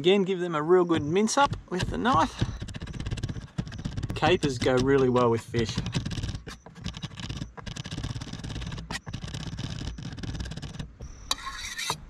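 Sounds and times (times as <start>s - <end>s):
knife blade scraping: 11.3s - 12.0s.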